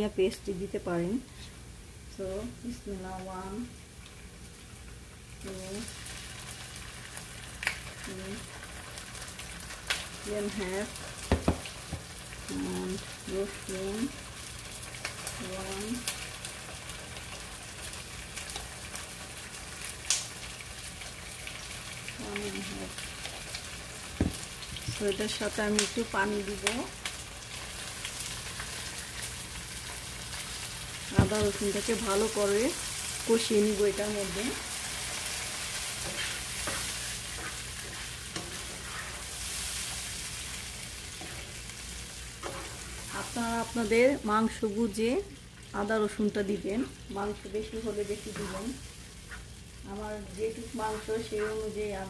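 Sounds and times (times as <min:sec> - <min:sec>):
onions sizzling in oil: 0:00.0 - 0:52.0
small crackles and pops: 0:05.4 - 0:13.1, 0:14.0 - 0:31.2
spatula scraping a pan: 0:34.5 - 0:41.6, 0:42.4 - 0:43.2, 0:48.2 - 0:49.6.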